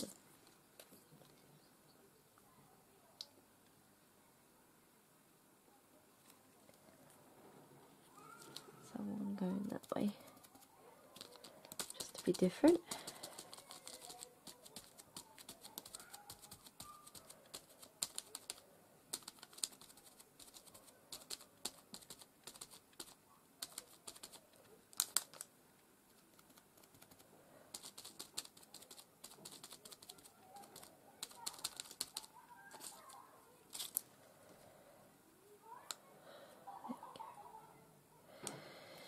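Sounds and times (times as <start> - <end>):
sponge tapping on paper: 11.2 - 24.4.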